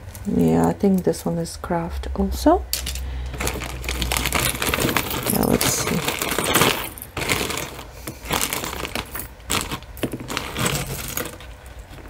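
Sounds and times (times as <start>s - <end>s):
jewelry clinking and clattering: 2.7s - 12.0s.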